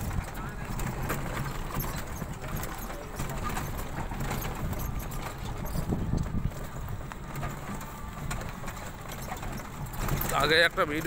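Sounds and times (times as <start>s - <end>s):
small knocks and rattles: 0.0s - 11.0s
vehicle rumbling on dirt road: 0.0s - 11.0s.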